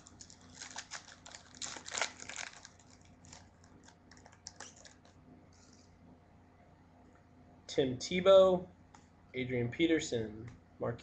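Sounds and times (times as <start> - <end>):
foil wrapper tearing and crinkling: 0.0 - 5.1.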